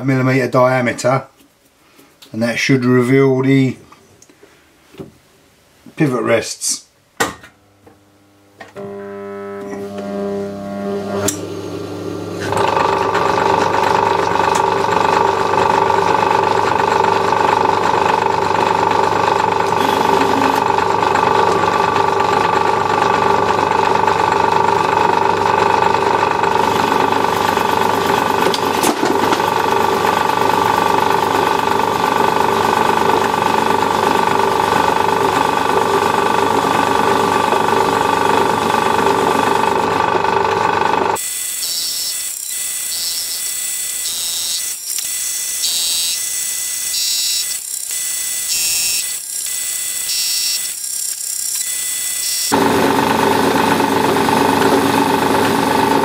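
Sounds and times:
lathe machine hum: 0:08.0 - 0:56.0
clanking motor bearings: 0:19.4 - 0:52.6.

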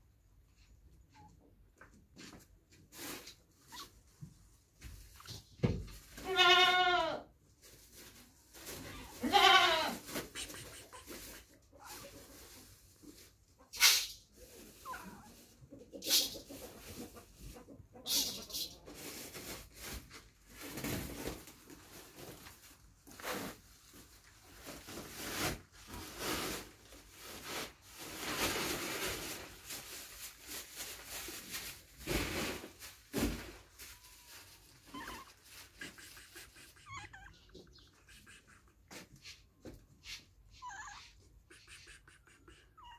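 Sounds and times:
cat rustling and breathing: 0:02.2 - 0:06.1, 0:07.5 - 0:09.2, 0:10.0 - 0:17.6, 0:18.4 - 0:42.9
cat meowing faintly: 0:33.9 - 0:35.4, 0:40.5 - 0:42.9.

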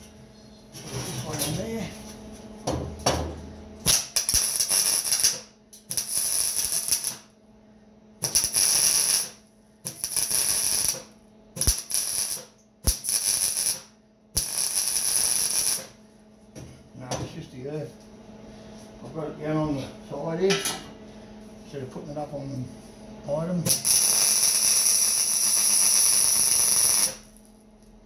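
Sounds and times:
welding arc crackling: 0:03.8 - 0:07.3, 0:08.2 - 0:16.0, 0:23.7 - 0:27.6.

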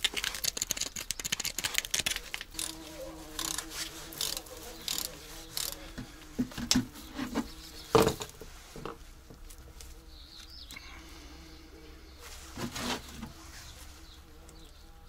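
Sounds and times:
drain plug being turned by hand: 0:00.0 - 0:05.8
pigeons cooing: 0:02.2 - 0:08.4.

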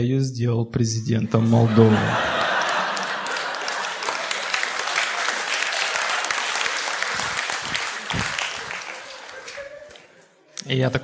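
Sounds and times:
audience applauding: 0:01.9 - 0:10.4.

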